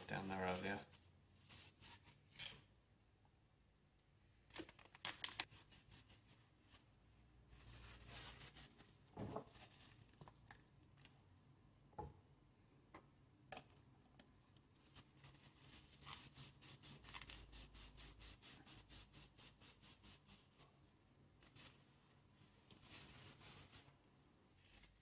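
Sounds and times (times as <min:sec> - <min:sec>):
paper towel rustling: 0:07.5 - 0:10.1, 0:21.4 - 0:25.0.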